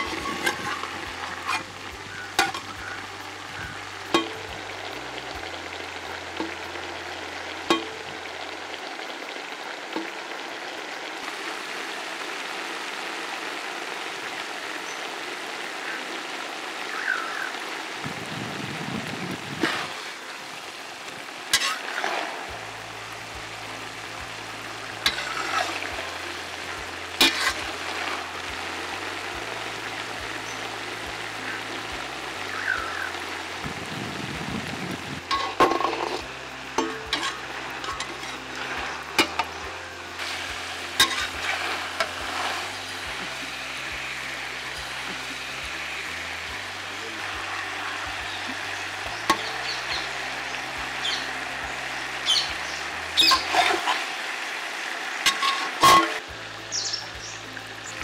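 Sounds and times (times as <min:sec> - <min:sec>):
metal spatula scraping a pan: 0:00.0 - 0:02.9, 0:21.5 - 0:21.9, 0:25.0 - 0:25.9, 0:27.2 - 0:27.8, 0:35.3 - 0:36.2, 0:36.8 - 0:39.6, 0:41.0 - 0:42.7, 0:53.2 - 0:54.0, 0:55.2 - 0:56.2
vegetables sizzling in a wok: 0:00.0 - 0:58.0.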